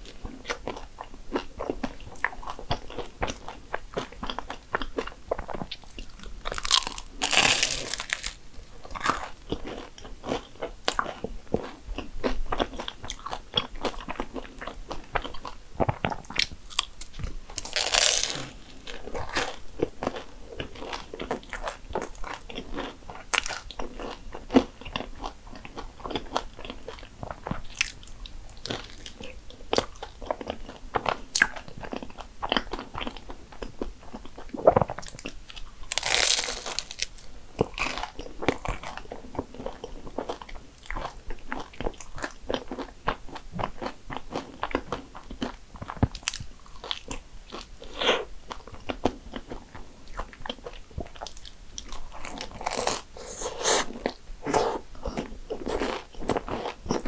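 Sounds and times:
chewing with mouth clicks: 0:00.0 - 0:57.0
crunchy pastry bites: 0:04.0 - 0:11.2, 0:15.3 - 0:20.2, 0:35.9 - 0:39.0.

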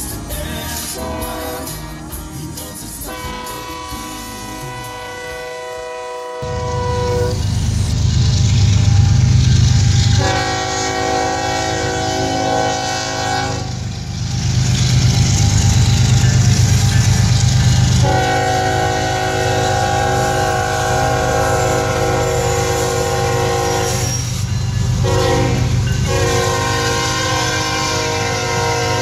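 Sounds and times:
diesel engines rumbling: 0:00.0 - 0:29.0
locomotive horn blasts: 0:00.8 - 0:01.9, 0:03.0 - 0:07.5, 0:09.8 - 0:13.8, 0:17.9 - 0:24.3, 0:25.0 - 0:29.0.

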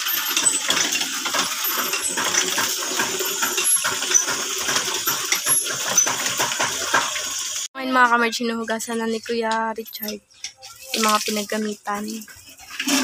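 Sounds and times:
metal tools clinking: 0:00.0 - 0:06.6
running water: 0:00.0 - 0:07.7, 0:09.1 - 0:13.0.

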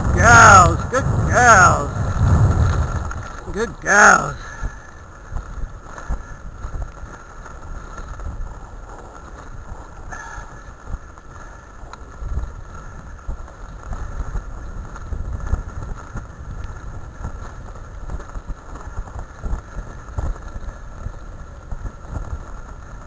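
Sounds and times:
wheels rumbling on gravel: 0:00.0 - 0:23.0.

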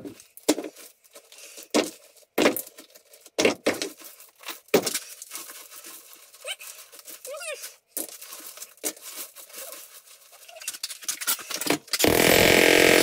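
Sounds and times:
concrete chunks knocking on rubble: 0:03.4 - 0:04.0.

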